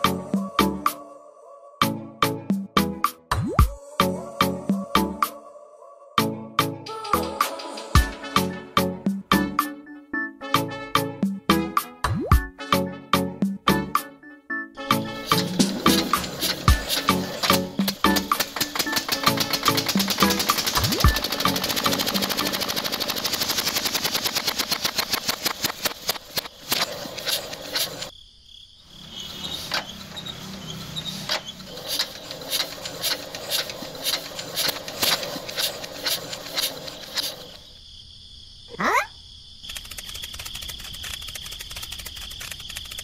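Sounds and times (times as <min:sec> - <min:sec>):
model engine clicking: 0:06.9 - 0:08.1, 0:15.2 - 0:28.1, 0:29.6 - 0:37.6, 0:39.7 - 0:43.0.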